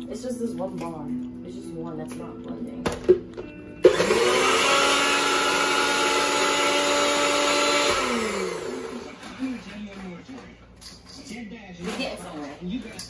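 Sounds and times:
blender running: 3.8 - 9.6.

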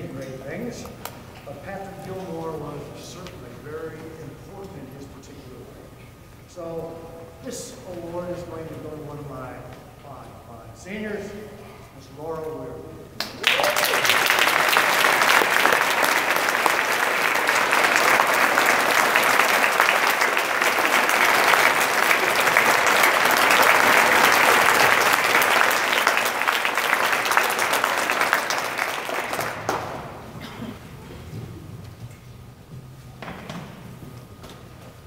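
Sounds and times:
audience applauding: 13.2 - 31.4.

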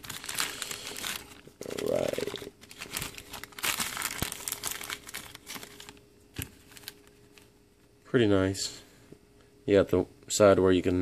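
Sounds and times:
plastic bag crinkling and tearing: 0.0 - 7.5.

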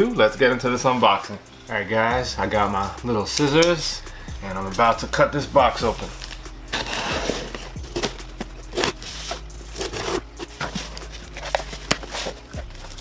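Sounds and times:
scissors cutting cardboard: 5.8 - 13.0.

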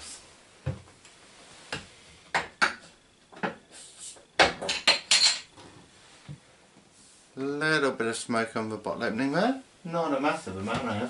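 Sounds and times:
hiss of escaping gas: 3.7 - 4.2.

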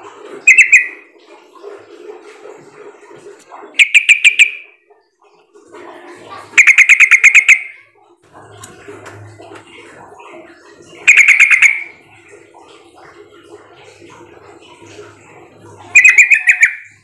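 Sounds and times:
bird chattering calls: 0.5 - 1.0, 3.8 - 4.6, 6.6 - 7.8, 11.0 - 11.9, 15.9 - 17.0.

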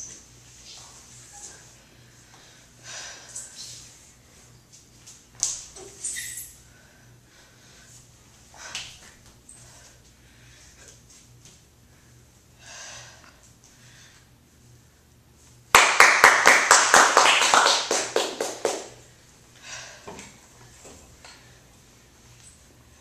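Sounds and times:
group clapping: 15.7 - 19.0.

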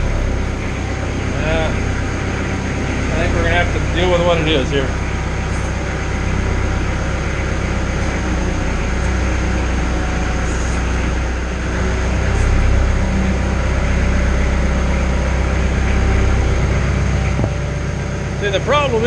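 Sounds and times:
tractor diesel engine running: 0.0 - 19.0.

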